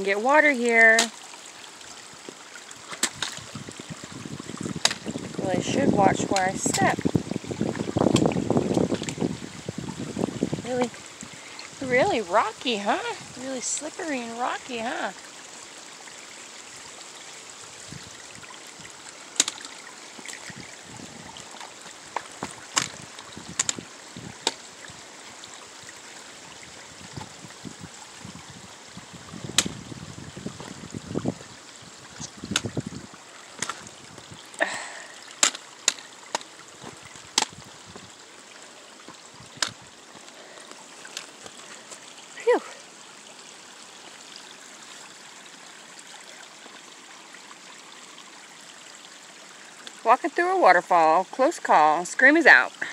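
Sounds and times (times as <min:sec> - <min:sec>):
stream running over rocks: 0:00.0 - 0:52.9
footsteps on wet rock: 0:06.3 - 0:09.3, 0:21.4 - 0:24.6, 0:33.6 - 0:33.9, 0:35.4 - 0:38.1.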